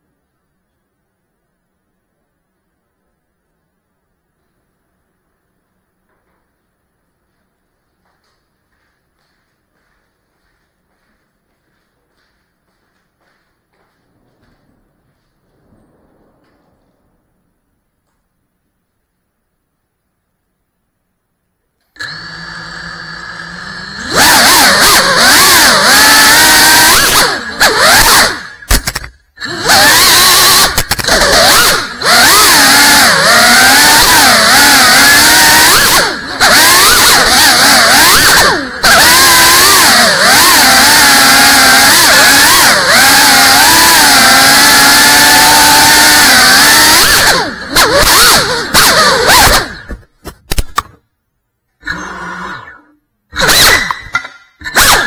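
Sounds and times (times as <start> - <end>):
drone motors whining: 21.9 - 50.1, 51.8 - 55.0.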